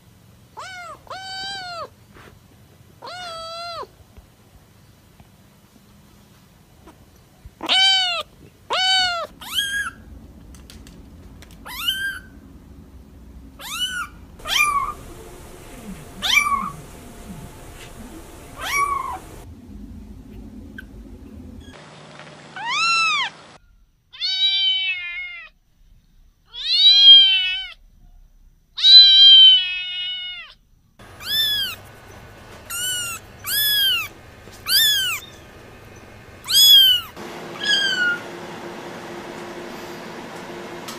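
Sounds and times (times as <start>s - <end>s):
kittens mewing: 7.6s - 10.0s, 11.6s - 12.3s, 13.6s - 19.5s, 28.8s - 38.2s.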